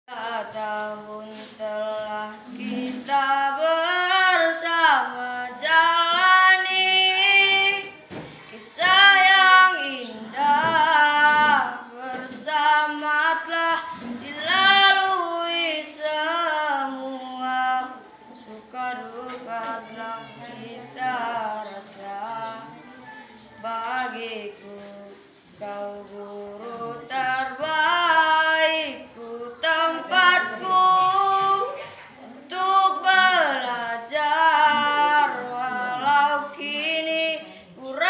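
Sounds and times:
boy singing solo: 0.1s - 38.0s.

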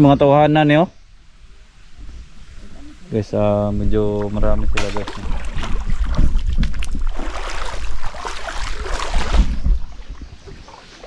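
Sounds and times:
low wind rumble on microphone: 1.0s - 11.0s
footsteps splashing in creek: 4.1s - 11.0s.

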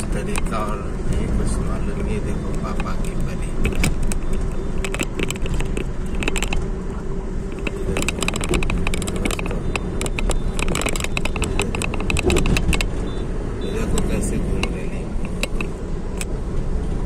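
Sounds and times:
vehicle engine and road rumble: 0.0s - 17.0s
short rattling clicks: 2.4s - 6.7s, 7.5s - 13.0s, 13.8s - 16.3s.

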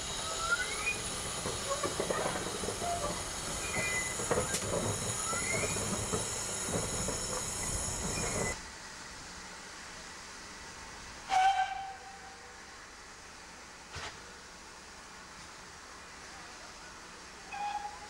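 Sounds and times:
rail clicks: 0.0s - 8.6s
train wheels squealing: 0.0s - 8.6s, 11.3s - 12.2s, 17.5s - 18.0s.

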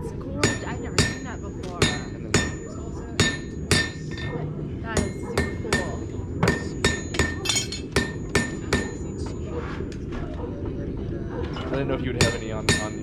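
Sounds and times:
hammer striking steel on anvil: 0.4s - 9.4s, 12.2s - 13.0s.

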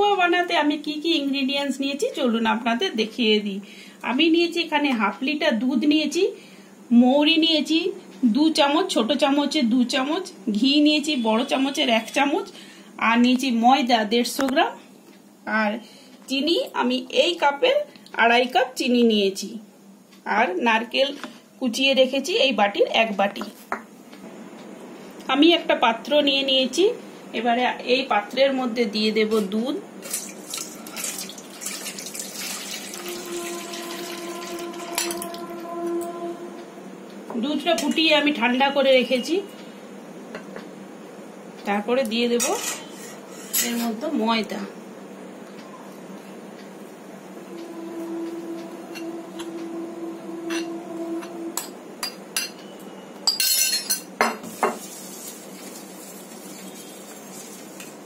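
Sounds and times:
milk pouring and splashing into bowl: 30.0s - 34.2s
metal spoon clinking on steel bowl: 51.6s - 54.1s.

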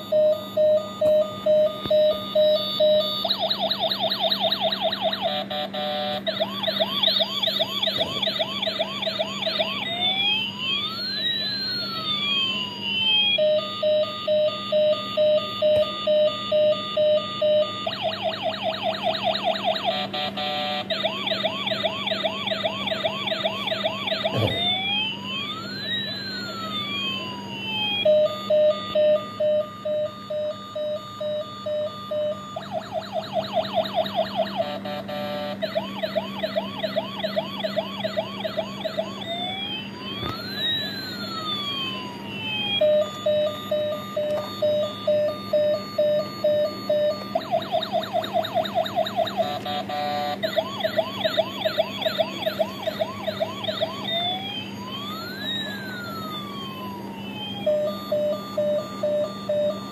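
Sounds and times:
toy electronic siren: 0.0s - 59.9s.

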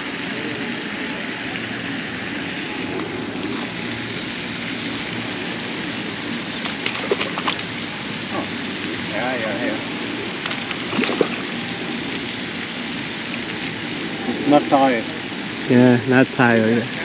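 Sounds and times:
rushing water: 0.0s - 17.0s
fish splashing at surface: 6.0s - 8.6s, 10.2s - 12.3s.

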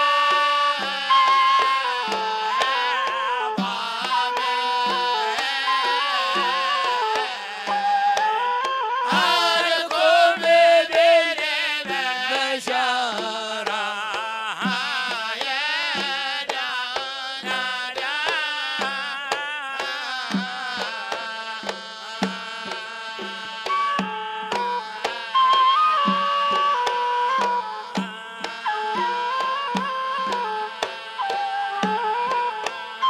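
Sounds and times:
hand drums beating: 0.0s - 33.0s
person singing melody: 9.0s - 16.7s.

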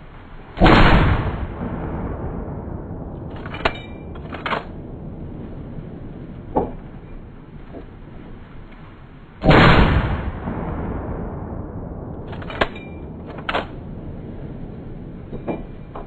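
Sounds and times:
outdoor background noise: 0.0s - 16.0s
sharp short cracks: 0.6s - 1.9s, 12.0s - 13.9s
loud bang: 0.6s - 7.3s, 9.4s - 16.0s.

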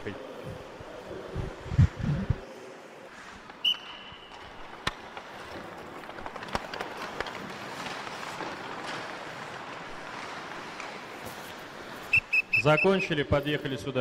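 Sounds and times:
skates scraping ice: 0.2s - 13.1s
hockey sticks and puck clacking: 3.3s - 13.0s.

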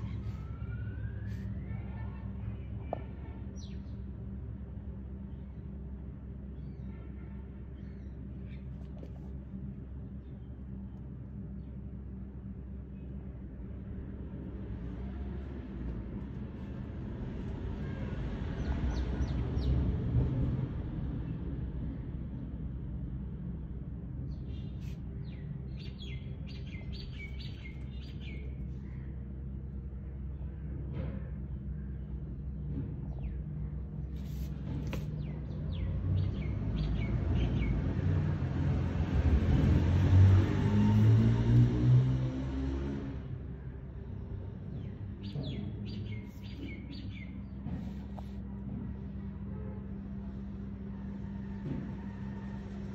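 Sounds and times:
low background rumble: 0.0s - 52.9s.

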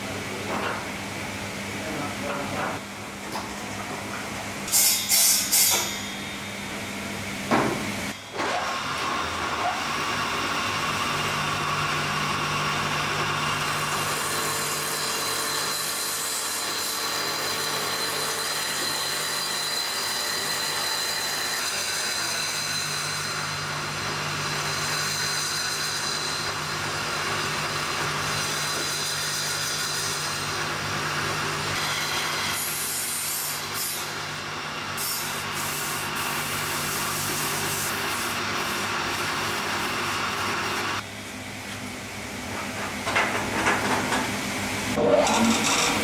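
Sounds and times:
wood lathe cutting: 8.4s - 41.0s, 44.9s - 46.0s.

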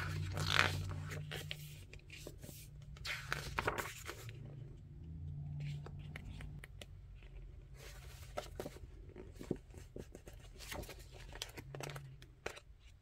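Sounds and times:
paper pages rustling: 0.0s - 4.5s, 5.6s - 13.0s.

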